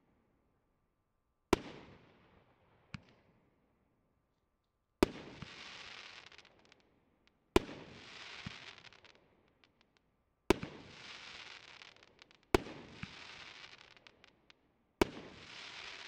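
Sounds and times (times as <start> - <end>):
firework crackling hiss: 10.8 - 14.1, 15.4 - 16.0.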